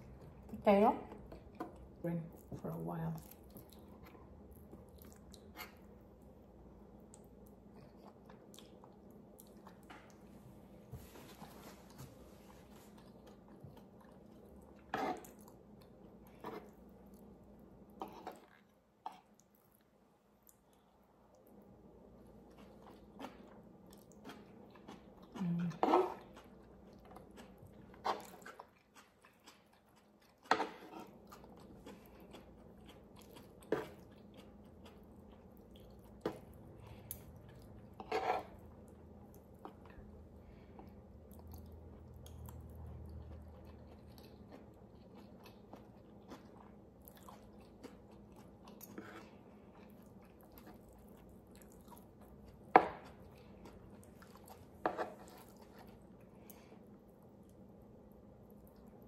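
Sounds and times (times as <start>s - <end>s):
close chewing: 22.4s - 40.2s, 40.8s - 56.6s.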